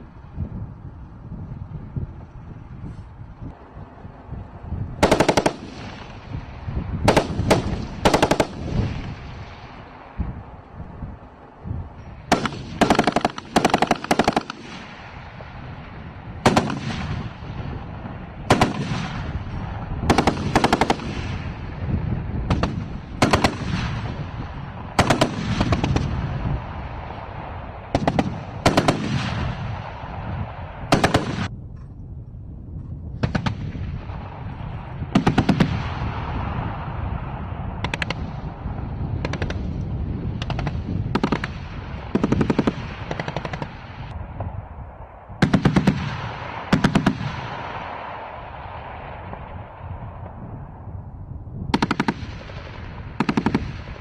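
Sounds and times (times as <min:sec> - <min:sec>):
low rumbling echo: 0:00.0 - 0:54.0
machine gun firing bursts: 0:05.0 - 0:06.2, 0:07.1 - 0:08.7, 0:12.3 - 0:14.9, 0:16.4 - 0:17.2, 0:18.5 - 0:19.2, 0:20.1 - 0:21.4, 0:22.5 - 0:24.0, 0:25.0 - 0:26.1, 0:27.9 - 0:29.5, 0:30.9 - 0:31.5, 0:40.4 - 0:44.1, 0:53.2 - 0:54.0.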